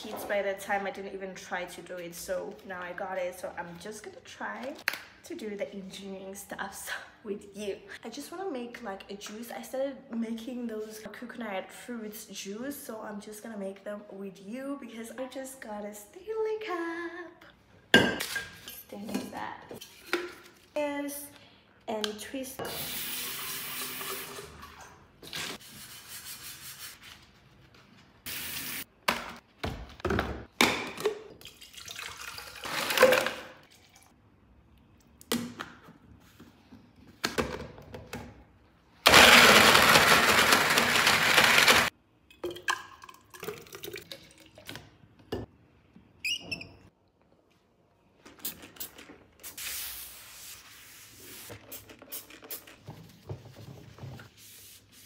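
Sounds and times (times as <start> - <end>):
blender running: 39.1 - 41.9.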